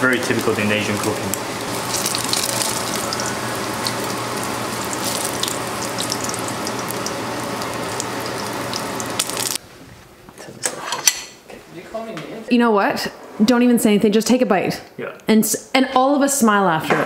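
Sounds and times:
food frying in hot oil: 0.0 - 9.6
low hum: 1.0 - 10.0.

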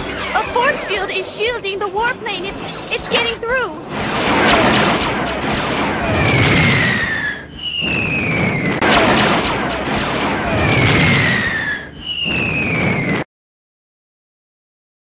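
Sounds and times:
cartoon rushing blasts: 2.5 - 13.2
falling whistles: 5.6 - 8.8, 10.2 - 13.3.

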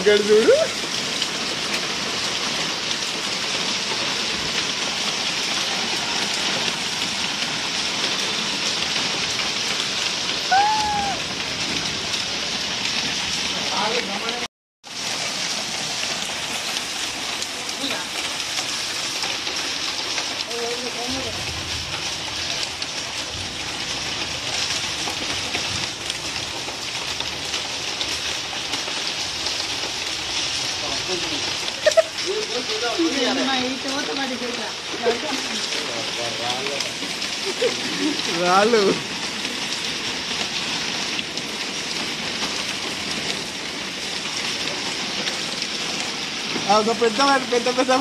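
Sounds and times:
hailstones ticking on concrete: 0.0 - 48.0
heavy rain hiss: 0.0 - 48.0.

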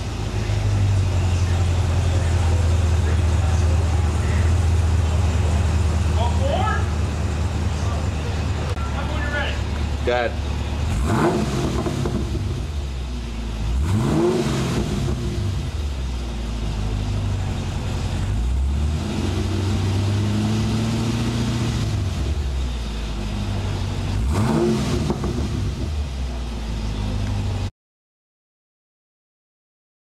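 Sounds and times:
car engine idling and revving: 0.0 - 27.7.

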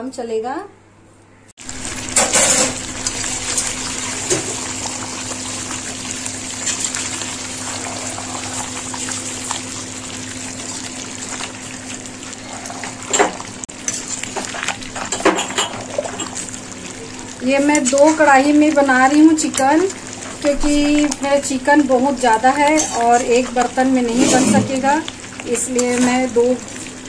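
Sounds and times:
curry sizzling and bubbling: 1.6 - 27.0.

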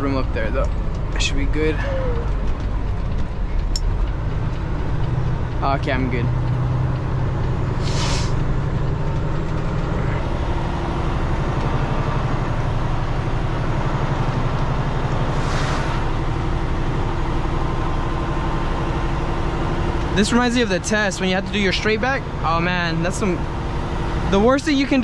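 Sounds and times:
diesel truck engine running: 0.0 - 25.0
short air hisses: 7.8 - 8.4, 15.3 - 16.0.

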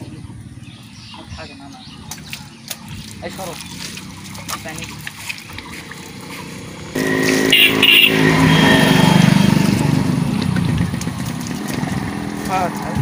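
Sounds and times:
water splashing and dripping: 0.0 - 13.0
tractor diesel engine running: 5.6 - 13.0.

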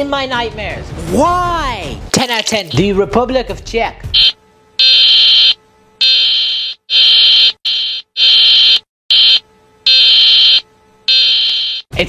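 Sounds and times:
electronic alarm buzz pulses: 4.1 - 11.9.

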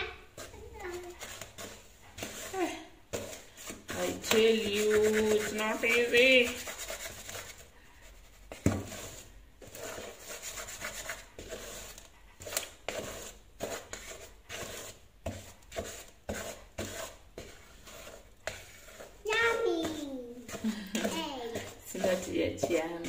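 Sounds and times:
wooden spoon scraping a bowl: 0.0 - 23.0.

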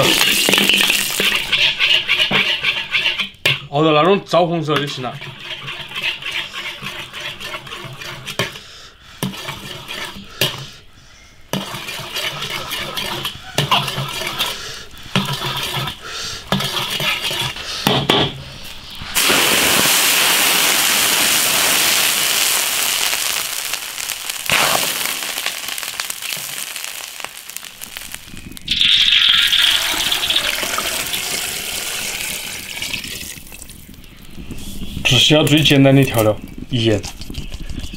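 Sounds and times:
steel ladle scraping a wok: 0.0 - 3.6, 4.8 - 8.6, 9.2 - 10.7, 11.5 - 17.6
light crackling: 18.6 - 34.6
loud hiss of steam: 19.0 - 32.8.

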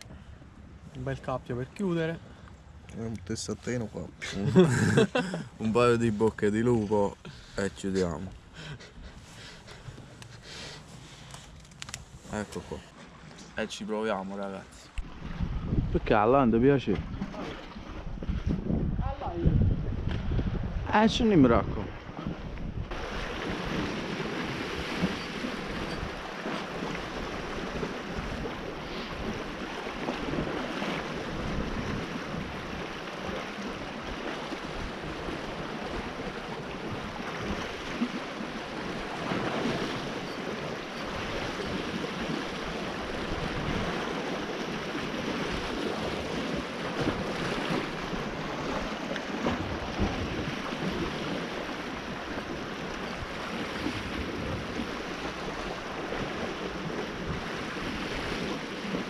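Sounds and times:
wind buffeting microphone: 15.0 - 59.0
waves washing against rocks: 22.9 - 59.0.

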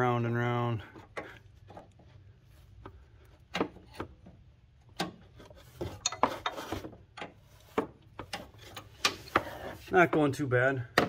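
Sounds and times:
metal wrench clicking and scraping: 6.0 - 6.6.

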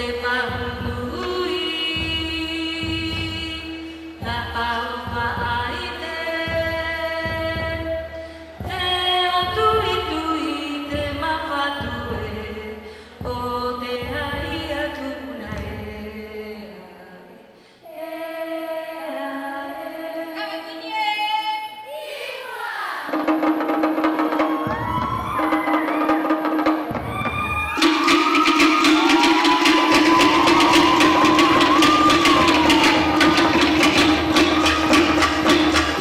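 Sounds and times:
quick percussion strikes: 23.1 - 36.0
low drum beat: 26.4 - 36.0
voices singing and chanting: 27.8 - 36.0.

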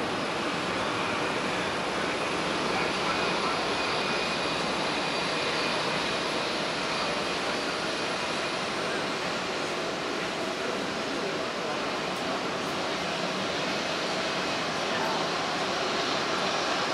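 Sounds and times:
faint high engine whine: 0.0 - 16.9
jet engines running at low power: 0.0 - 16.9.

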